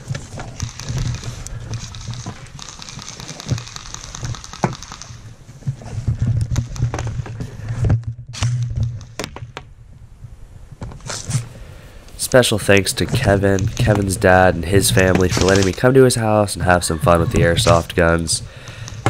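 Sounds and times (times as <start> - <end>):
low rumbling handling noise: 0.0 - 16.4
airsoft guns firing: 0.5 - 5.3, 13.2 - 16.0.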